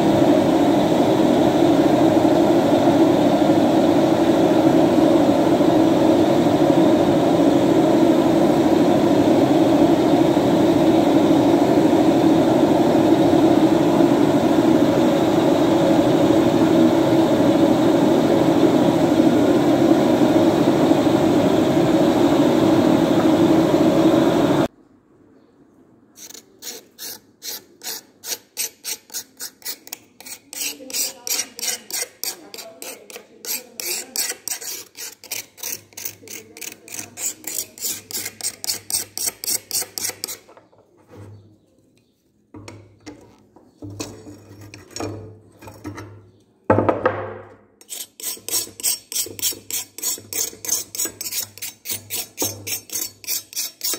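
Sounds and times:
tool scraping steel blade: 26.2 - 41.4, 43.9 - 45.9, 47.8 - 53.9.

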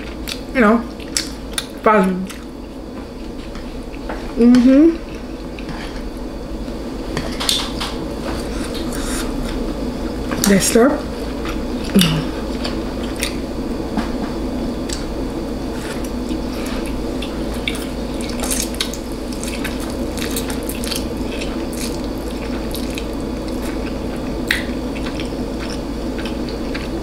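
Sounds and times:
steady background hum: 0.0 - 27.0
wet chewing mouth sounds: 15.8 - 27.0.

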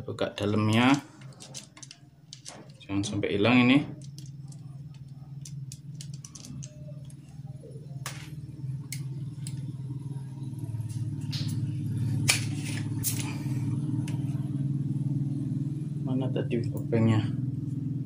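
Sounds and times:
low engine drone: 0.0 - 18.0
small parts clicking and tapping: 0.7 - 3.2, 3.9 - 7.4.

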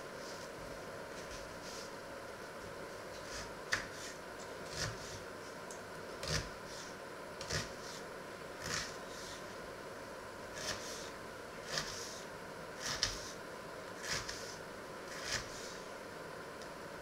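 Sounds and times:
faint steady hum: 0.0 - 17.0
knife cutting onion on board: 3.2 - 5.2, 6.2 - 8.0, 8.6 - 9.4, 10.5 - 12.2, 12.8 - 13.4, 14.0 - 15.9.

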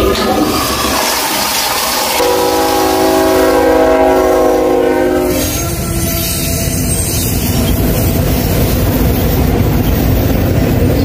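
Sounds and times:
train rumbling: 0.0 - 11.0
locomotive air horn: 2.1 - 7.1.

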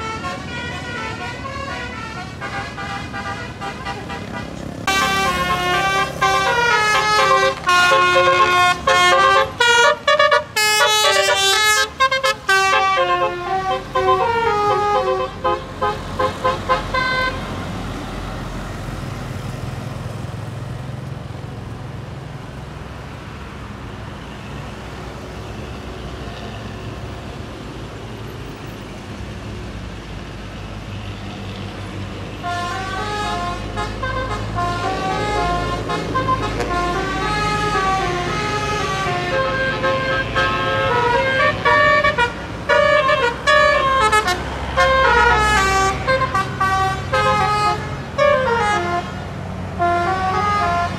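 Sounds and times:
musical bus horn tune: 0.0 - 17.6, 32.3 - 50.9
low rumble of bus engines: 0.0 - 50.9
traffic: 0.0 - 50.9.

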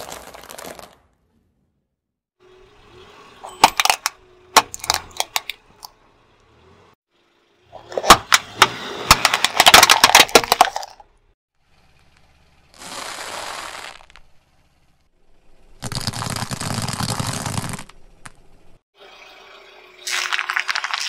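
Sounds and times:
plastic toys cracking under tyre: 3.6 - 5.6, 9.1 - 11.1.

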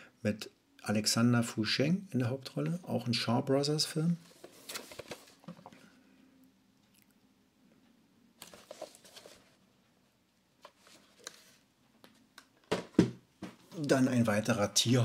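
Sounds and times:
plastic case rustling and scraping: 4.2 - 5.8, 8.4 - 9.6.

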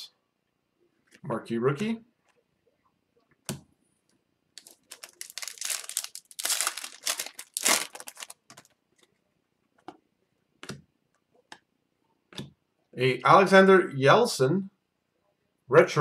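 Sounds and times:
foil wrapper tearing and crinkling: 4.6 - 8.7.

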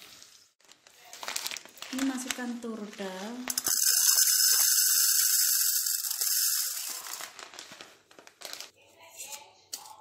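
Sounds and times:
lentils pouring into metal pot: 3.4 - 7.6.

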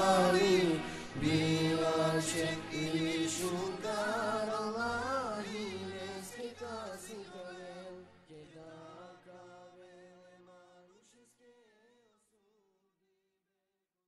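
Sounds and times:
men singing a devotional hymn: 0.0 - 11.7.

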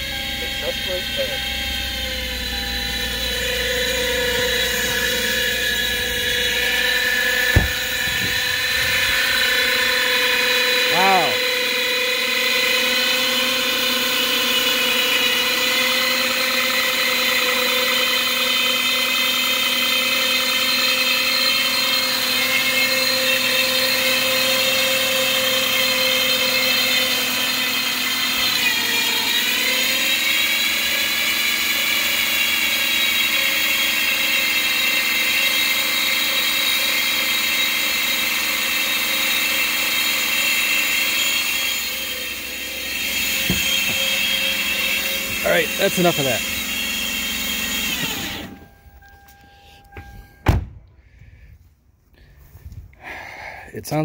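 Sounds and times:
high-pitched drivetrain whine: 0.0 - 51.0.

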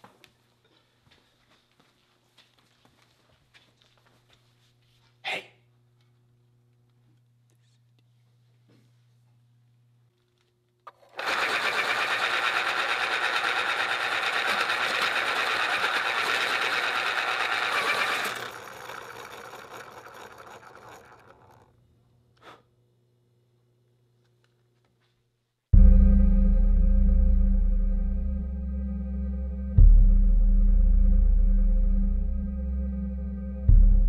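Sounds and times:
electric pencil sharpener grinding: 10.9 - 21.8.

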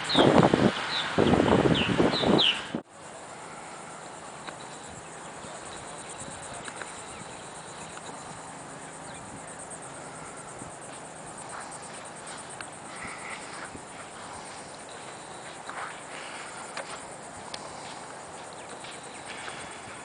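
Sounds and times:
high insect trill: 0.0 - 20.0
outdoor background hiss: 0.0 - 20.0.

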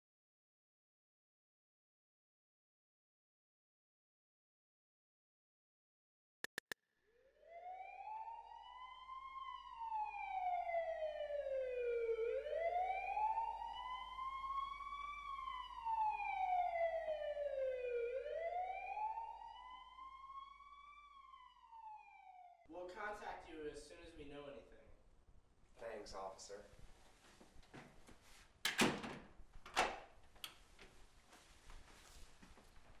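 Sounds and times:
police siren wailing: 7.2 - 22.8.

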